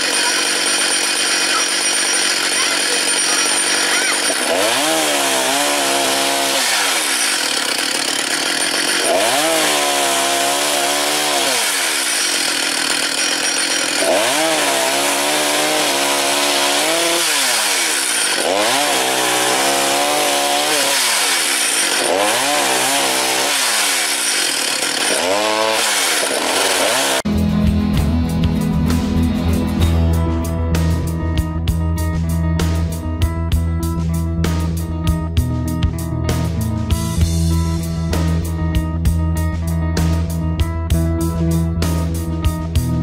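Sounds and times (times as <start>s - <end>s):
chainsaw cutting log: 0.0s - 27.3s.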